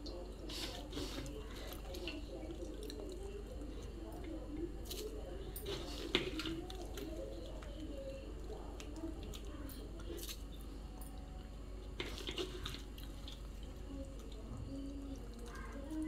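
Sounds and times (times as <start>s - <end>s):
coconut milk dripping into bowl: 0.0s - 16.0s
wet squishes of squeezing: 11.8s - 14.5s.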